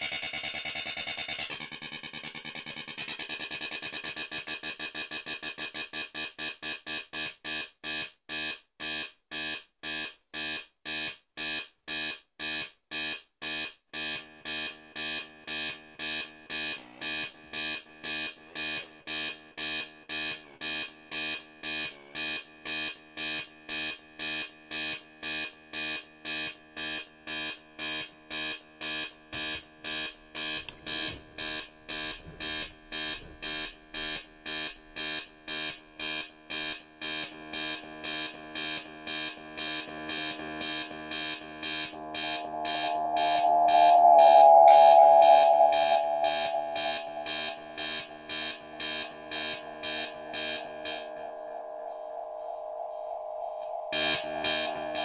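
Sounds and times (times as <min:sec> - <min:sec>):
pulsing buzzy synth tone: 0:40.0 - 0:55.0.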